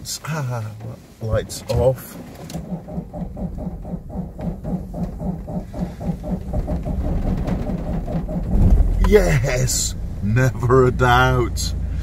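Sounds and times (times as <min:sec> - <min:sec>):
engine cranking and starting: 0:02.0 - 0:09.0.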